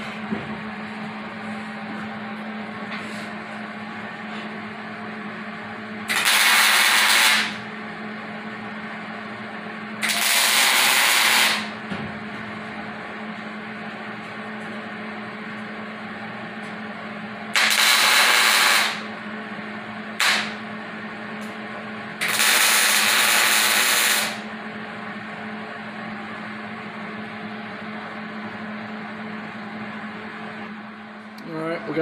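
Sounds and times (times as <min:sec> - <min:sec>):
steady low hum: 0:00.0 - 0:32.0
welder arc crackling: 0:06.1 - 0:07.6, 0:10.0 - 0:11.7, 0:17.5 - 0:19.0, 0:20.2 - 0:20.6, 0:22.2 - 0:24.4.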